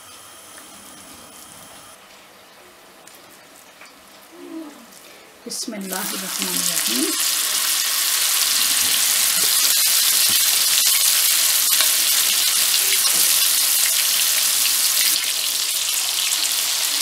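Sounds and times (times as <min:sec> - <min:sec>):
patty sizzling in hot oil: 0:05.8 - 0:17.0.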